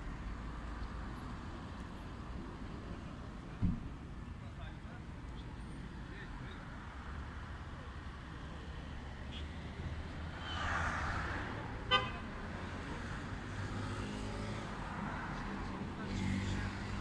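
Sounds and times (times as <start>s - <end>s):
road traffic rumble: 0.0s - 17.0s
car horn toot: 11.9s - 12.2s
vehicle engine running nearby: 12.4s - 17.0s
vehicle passing: 12.4s - 17.0s.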